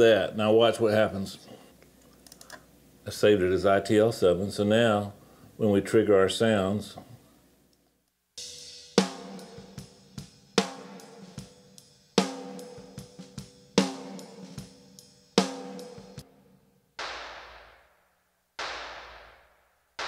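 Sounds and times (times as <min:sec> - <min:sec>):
hi-hat hits: 0:08.4 - 0:16.2, 0:17.0 - 0:18.0, 0:18.6 - 0:20.0
kick drum hits: 0:17.0 - 0:17.8, 0:18.6 - 0:19.4
snare drum hits: 0:17.0 - 0:17.9, 0:18.6 - 0:19.6.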